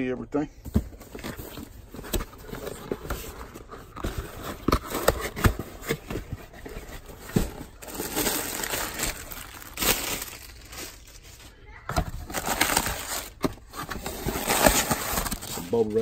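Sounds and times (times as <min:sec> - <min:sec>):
cardboard box being opened: 0:00.9 - 0:11.0, 0:12.1 - 0:16.0
bubble wrap rustling: 0:01.3 - 0:11.6, 0:12.2 - 0:16.0.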